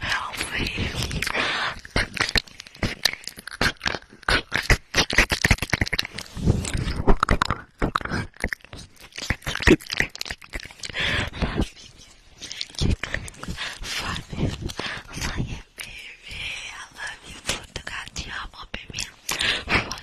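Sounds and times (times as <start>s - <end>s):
wet mouth clicks and smacks: 0.4s - 16.4s, 18.8s - 20.0s.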